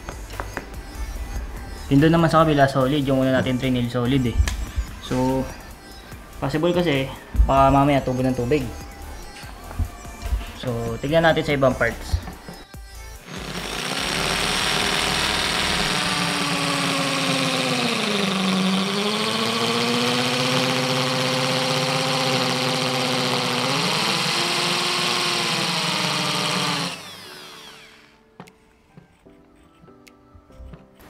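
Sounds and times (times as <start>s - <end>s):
electric drill boring into concrete: 13.2s - 28.2s.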